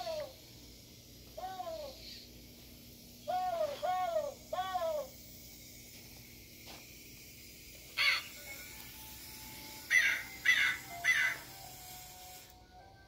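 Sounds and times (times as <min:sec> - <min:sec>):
recorded crow caws: 0:08.0 - 0:08.3, 0:09.9 - 0:11.5.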